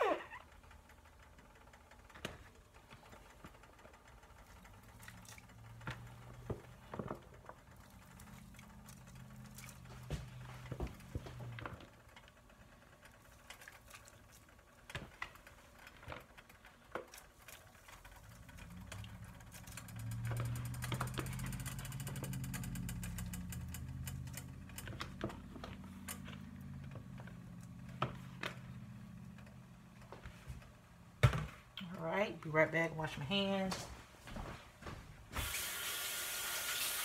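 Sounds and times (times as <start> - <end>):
low hum: 17.5 - 31.2.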